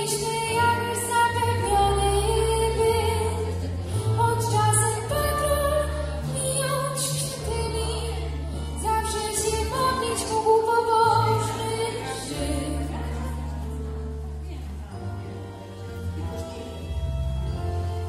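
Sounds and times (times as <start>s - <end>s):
woman singing into a microphone: 0.0s - 13.3s
instrumental accompaniment: 0.0s - 18.0s.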